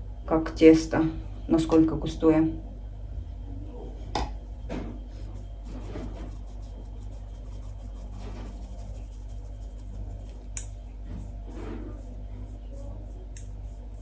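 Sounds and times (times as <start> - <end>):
steady low hum: 0.0 - 14.0
flour sifting through sieve: 5.1 - 14.0.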